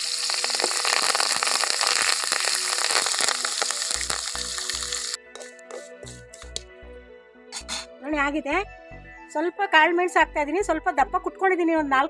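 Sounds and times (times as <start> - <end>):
leaves sizzling in hot oil: 0.0 - 5.5
wooden spatula stirring: 5.3 - 6.6.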